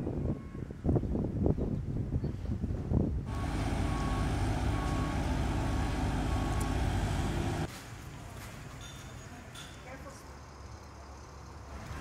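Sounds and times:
reversing alarm beeping: 0:03.3 - 0:07.7
skid-steer loader engine running: 0:03.3 - 0:07.7.

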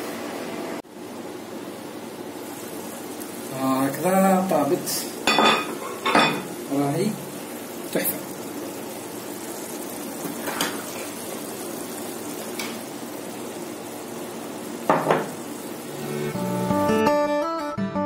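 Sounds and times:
stew sizzling in pot: 0:00.9 - 0:17.0
pot knocking: 0:14.9 - 0:15.3
acoustic guitar music: 0:15.8 - 0:18.0.

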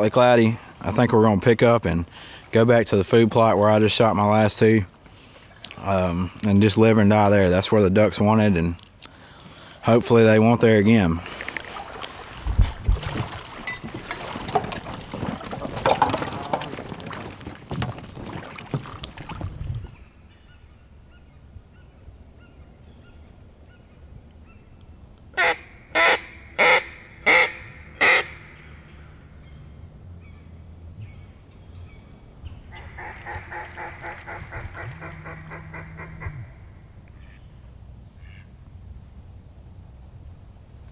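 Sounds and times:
water sloshing and splashing: 0:11.2 - 0:20.1
duck call quacks: 0:25.4 - 0:28.4, 0:32.8 - 0:36.6.

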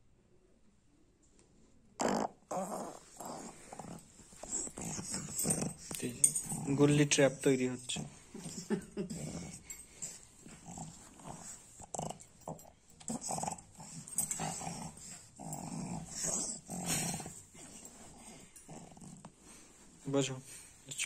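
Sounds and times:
dog growling: 0:02.0 - 0:19.8.

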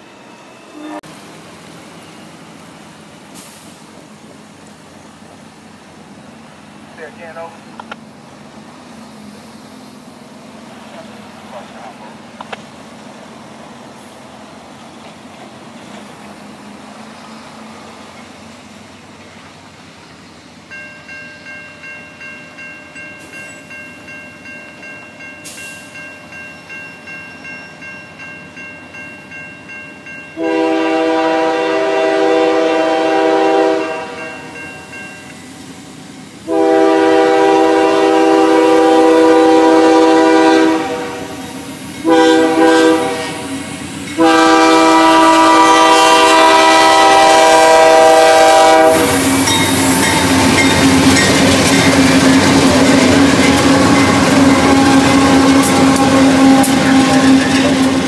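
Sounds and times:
train engines and wheels rumbling: 0:00.0 - 0:58.0
locomotive air horn: 0:00.7 - 0:01.1, 0:30.4 - 0:34.5, 0:36.5 - 0:41.4, 0:42.0 - 0:43.5, 0:44.2 - 0:50.6, 0:53.3 - 0:58.0
bell ringing: 0:20.7 - 0:30.4, 0:49.4 - 0:51.4.

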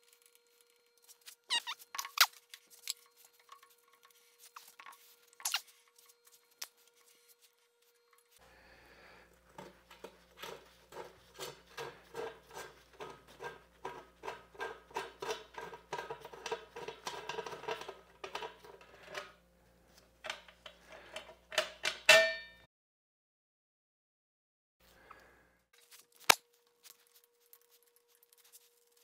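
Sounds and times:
metal parts clinking and scraping: 0:00.0 - 0:07.1
ringing metallic clank: 0:22.1 - 0:22.6.

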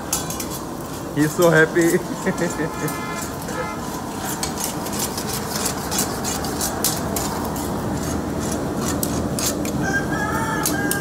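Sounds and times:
food sizzling: 0:00.0 - 0:11.0
metal spatulas scraping wok: 0:00.0 - 0:11.0
rooster crowing: 0:09.7 - 0:11.0.

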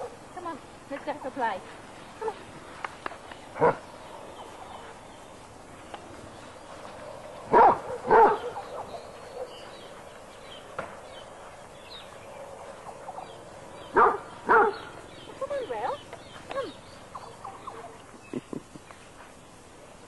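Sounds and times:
dog baying: 0:07.5 - 0:09.6.

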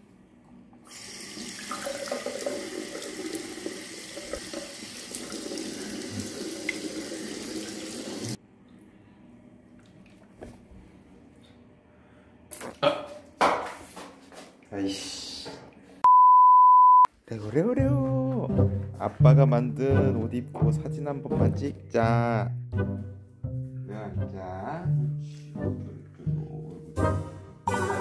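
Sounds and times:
sink tap running: 0:00.8 - 0:08.4.

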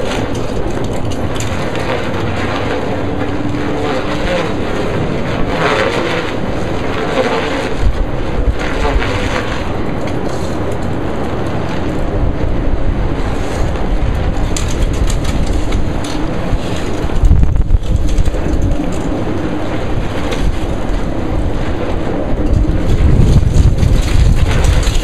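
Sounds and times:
gusty wind buffeting microphone: 0:00.0 - 0:25.0.

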